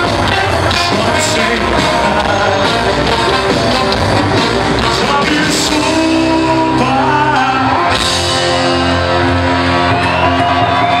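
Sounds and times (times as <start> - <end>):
lead singer singing: 0.0 - 8.7
pop-rock band playing: 0.0 - 11.0.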